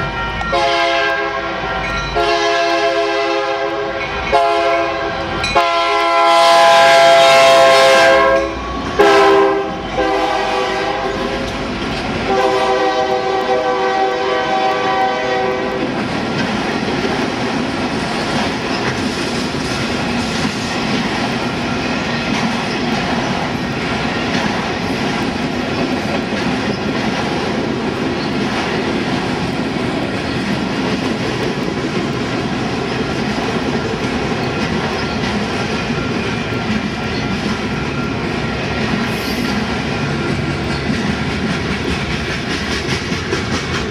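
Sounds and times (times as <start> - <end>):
locomotive horn: 0.2 - 11.6, 12.2 - 15.9
train wheels clattering on rails: 8.2 - 43.9.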